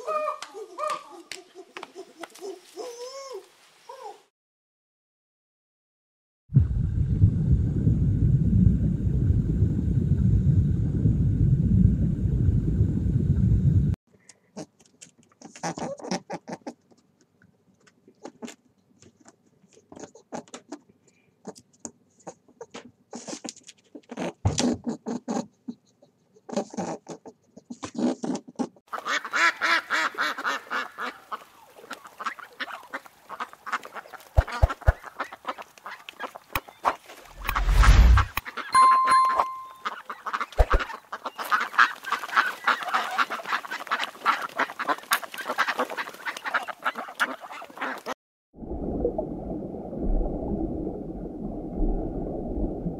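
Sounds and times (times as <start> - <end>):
steady low rumble: 6.6 - 14.0, 37.3 - 38.3
ducks quacking: 28.9 - 37.0, 39.9 - 48.2.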